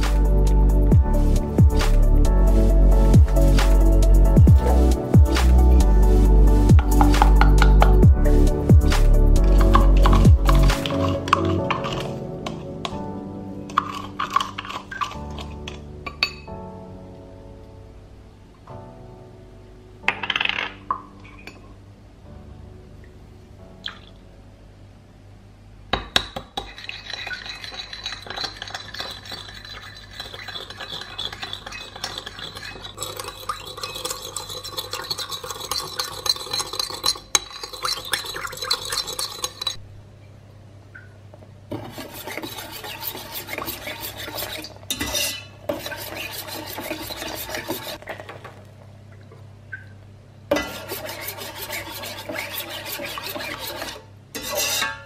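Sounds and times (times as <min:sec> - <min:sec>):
spoon beating eggs in bowl: 0:06.8 - 0:08.1, 0:08.8 - 0:13.0, 0:13.7 - 0:16.4, 0:26.2 - 0:39.8, 0:41.7 - 0:48.3, 0:50.5 - 0:54.9.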